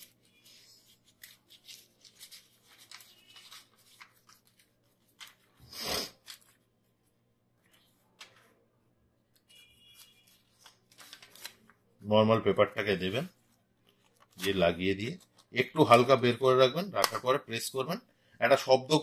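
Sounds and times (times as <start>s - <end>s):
paper rustling: 0.0s - 8.6s, 9.3s - 11.8s, 12.8s - 16.0s.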